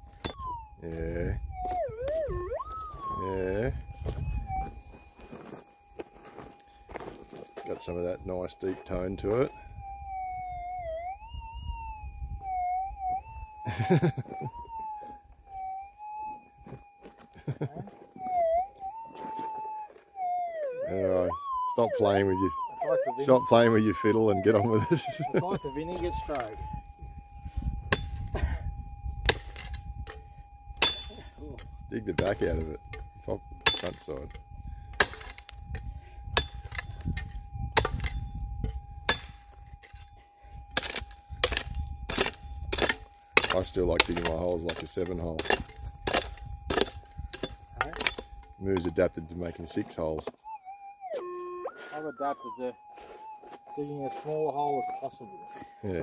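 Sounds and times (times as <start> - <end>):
pick striking stony ground: 0.0 - 0.6, 27.8 - 28.5, 29.2 - 49.0
metal detector humming: 0.0 - 17.5.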